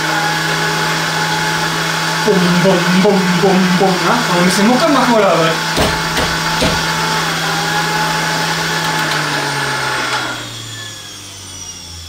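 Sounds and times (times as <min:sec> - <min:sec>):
juicer motor humming and winding down: 0:00.0 - 0:04.0, 0:07.5 - 0:12.0.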